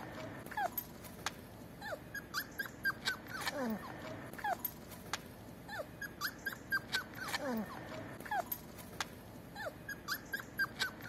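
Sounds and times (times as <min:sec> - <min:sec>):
puppies whimpering and yipping: 0:00.0 - 0:00.9, 0:01.8 - 0:04.8, 0:05.6 - 0:08.7, 0:09.5 - 0:11.0
puppy whining: 0:00.0 - 0:01.1, 0:01.7 - 0:05.0, 0:05.6 - 0:11.0.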